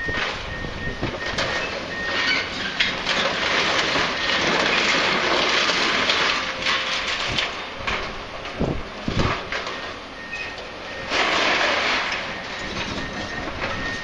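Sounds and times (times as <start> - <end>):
excavator rumble: 0.0 - 14.0
rubble and masonry crashing: 0.0 - 14.0
short high beeps: 9.7 - 14.0.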